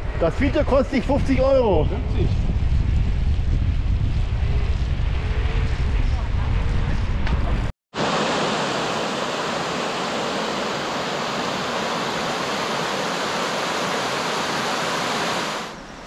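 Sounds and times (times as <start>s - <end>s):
river water rushing over rocks: 8.0s - 15.7s.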